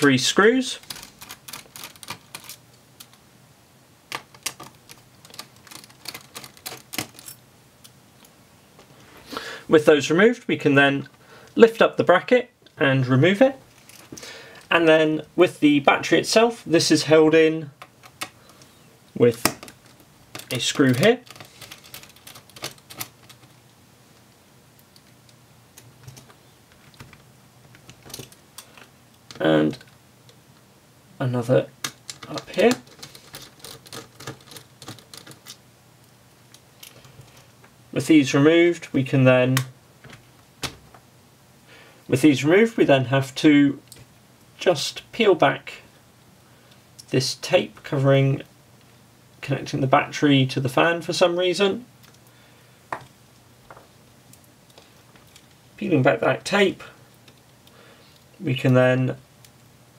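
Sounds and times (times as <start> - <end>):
small screws being handled: 0.8 - 3.2, 4.1 - 8.0, 19.6 - 23.6, 31.8 - 35.6.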